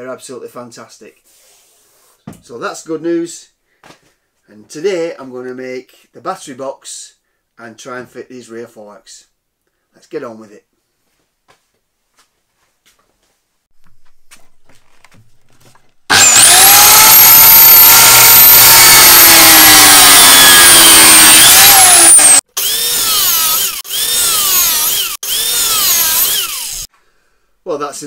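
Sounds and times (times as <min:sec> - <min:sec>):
cut-off saw cutting metal: 0:16.1 - 0:26.9.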